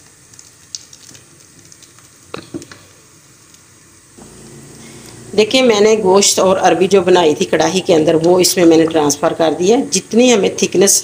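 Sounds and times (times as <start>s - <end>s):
low steady hum: 4.0s - 10.2s.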